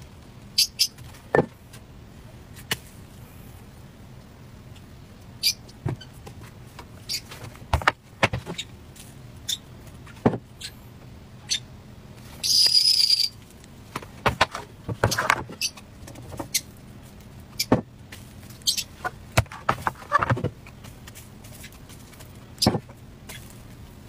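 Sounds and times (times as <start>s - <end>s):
scraping with high whistle: 12.4s - 13.4s.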